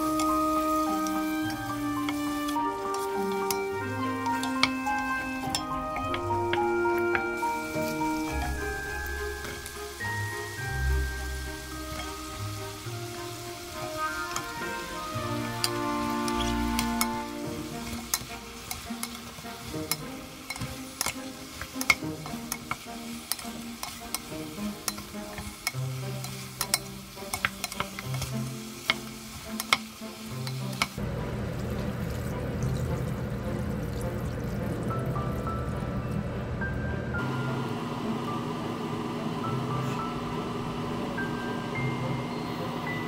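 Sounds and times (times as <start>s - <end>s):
food sizzling: 0.0s - 36.1s
water pouring into a pot: 6.8s - 35.8s
spatula scraping a pot: 15.4s - 31.0s.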